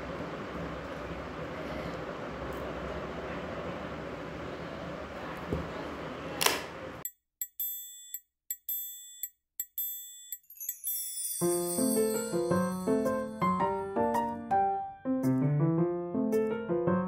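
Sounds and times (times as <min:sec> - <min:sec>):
sharp ringing clicks: 0:07.4 - 0:11.2
light piano-like music: 0:11.3 - 0:17.0.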